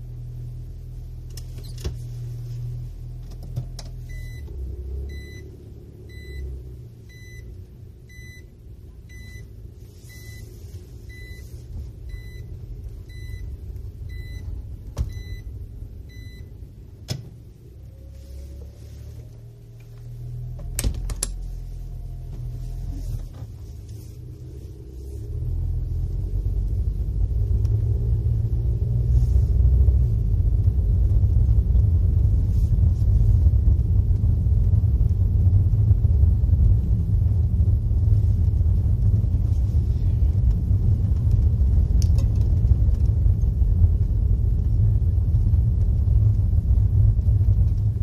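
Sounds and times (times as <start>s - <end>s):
van engine idling and pulling away: 0.0s - 48.0s
cabin warning beeps: 6.1s - 6.5s, 7.1s - 7.5s, 8.1s - 8.5s, 9.1s - 9.5s, 10.1s - 10.5s, 11.1s - 11.5s, 12.1s - 12.5s.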